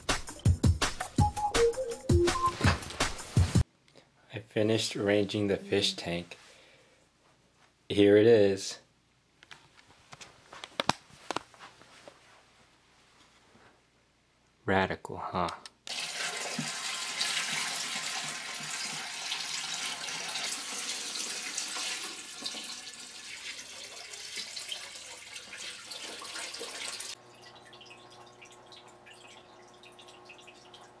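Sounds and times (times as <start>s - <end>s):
water pouring into aquarium: 15.9s - 31.0s
water trickling: 15.9s - 31.0s.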